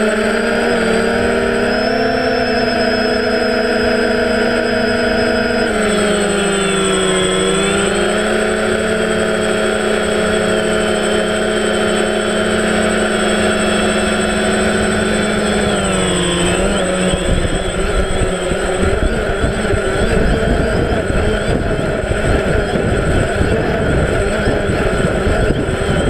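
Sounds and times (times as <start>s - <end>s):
drone motors buzzing whine: 0.0s - 26.0s
thin high steady whistle: 1.6s - 8.2s, 10.4s - 21.6s.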